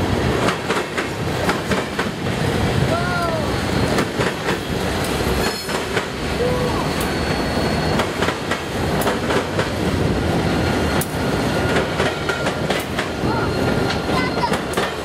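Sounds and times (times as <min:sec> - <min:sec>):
diesel locomotive passing: 0:00.0 - 0:15.0
train wheels clacking: 0:00.0 - 0:15.0
thin wheel squeals: 0:06.6 - 0:08.0.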